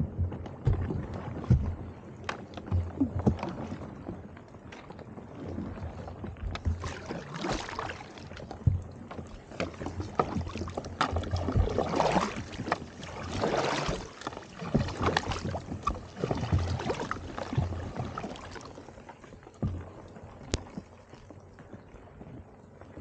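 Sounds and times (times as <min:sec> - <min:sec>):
paddles splashing through ice: 0:00.0 - 0:23.0
water sloshing: 0:00.0 - 0:23.0.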